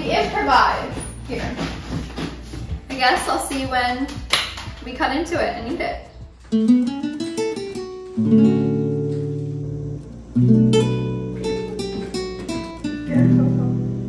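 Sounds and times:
acoustic guitar strumming chords: 0:06.4 - 0:14.0
guitar notes picked: 0:06.5 - 0:14.0.

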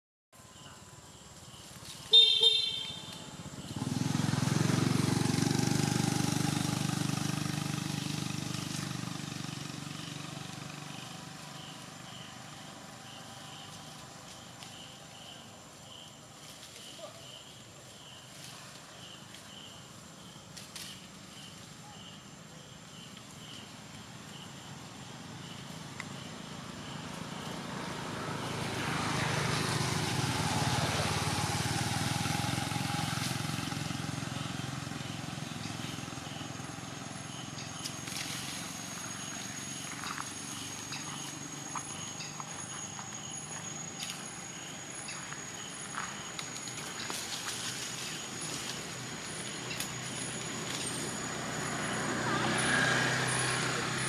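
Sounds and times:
passing vehicle engine rumble: 0:00.8 - 0:54.0
short horn toot: 0:02.1 - 0:03.2.

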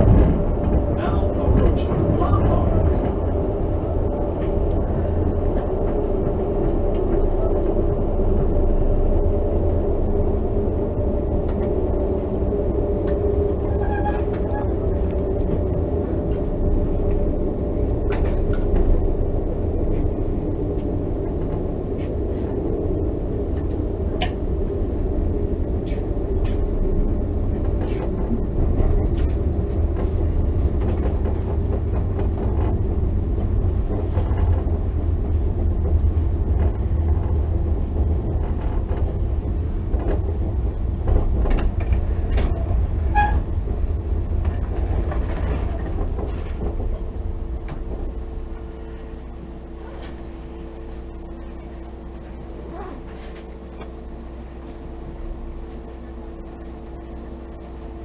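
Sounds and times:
train car low rumble: 0:00.0 - 0:58.0.

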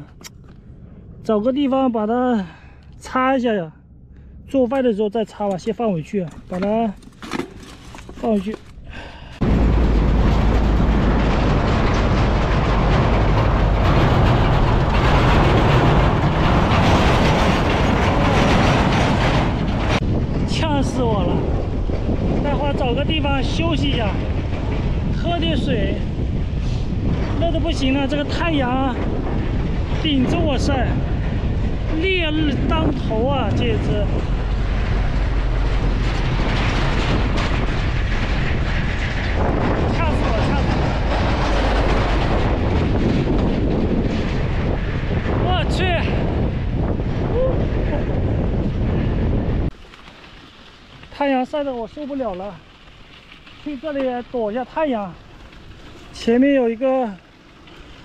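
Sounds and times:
vehicle road noise: 0:00.0 - 0:58.0
wind buffeting on microphone: 0:00.0 - 0:58.0
truck passing on gravel road: 0:09.4 - 0:20.3, 0:30.8 - 0:45.4, 0:46.2 - 0:58.0.

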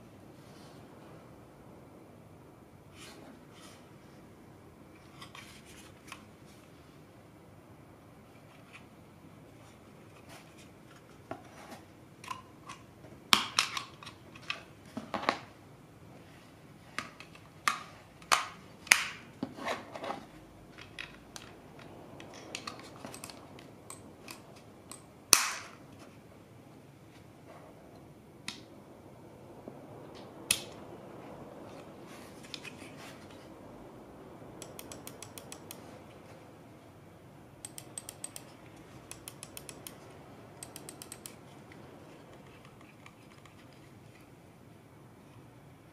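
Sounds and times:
scroll wheel ticking: 0:34.6 - 0:35.8, 0:37.6 - 0:40.0, 0:40.6 - 0:41.4.

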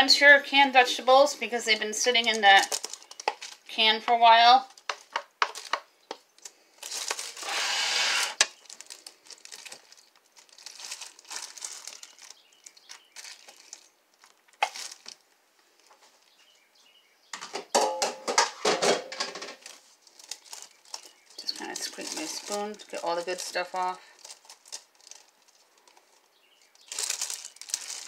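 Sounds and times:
plastic liner crinkling: 0:01.0 - 0:16.4, 0:19.2 - 0:28.0
small clicks and rustles: 0:01.7 - 0:03.7, 0:04.6 - 0:07.4, 0:08.4 - 0:16.4, 0:19.5 - 0:28.0
wooden spoon knocking and scraping: 0:04.8 - 0:06.3.

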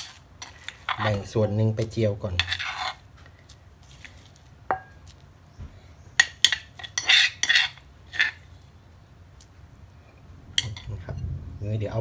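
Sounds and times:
spoon scraping mortar: 0:00.0 - 0:05.2, 0:06.2 - 0:08.7
metal spoon clinking on stone mortar: 0:04.7 - 0:05.1, 0:06.2 - 0:08.4, 0:10.6 - 0:11.0.

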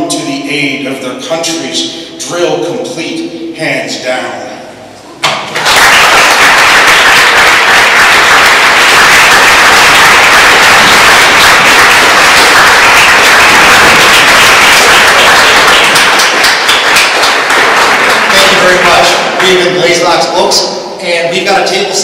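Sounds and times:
audience applauding: 0:05.5 - 0:20.1.

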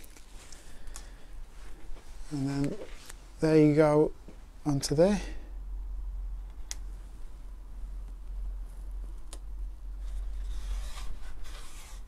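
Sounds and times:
steady low hum: 0:00.1 - 0:12.0.

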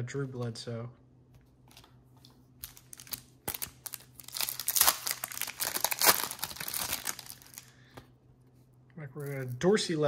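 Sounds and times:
wrapper tearing and crinkling: 0:02.6 - 0:07.7.

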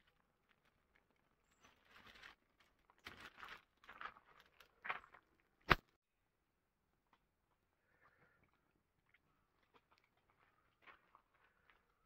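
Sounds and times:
dry sticks rustling: 0:00.0 - 0:05.8.

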